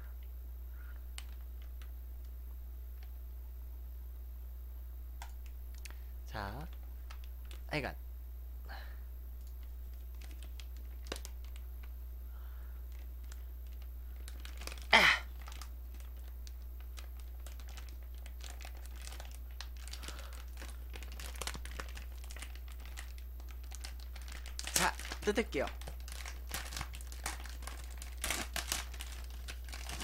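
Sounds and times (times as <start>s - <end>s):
plastic wrapper crinkling: 6.6s - 7.7s, 9.4s - 12.0s, 12.9s - 30.0s.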